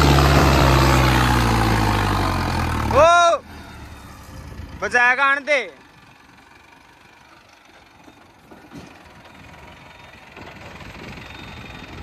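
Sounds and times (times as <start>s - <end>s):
tractor diesel engine under load: 0.0s - 12.0s.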